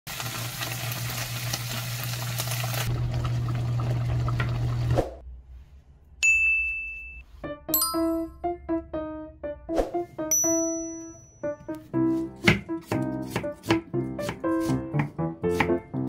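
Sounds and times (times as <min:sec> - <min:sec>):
food sizzling in oil: 0:00.1 - 0:05.0
single chime: 0:06.2 - 0:08.4, 0:10.3 - 0:11.7
light music of ringing notes: 0:06.2 - 0:12.5.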